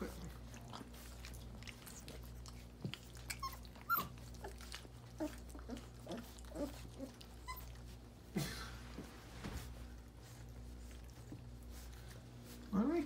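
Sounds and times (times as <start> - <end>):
puppies whimpering: 0.0 - 8.2.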